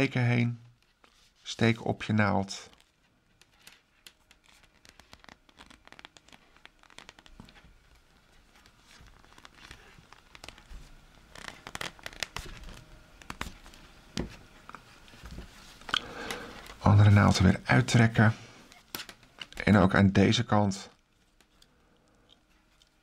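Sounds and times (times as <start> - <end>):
knitted stitches rubbing: 4.4 - 7.4.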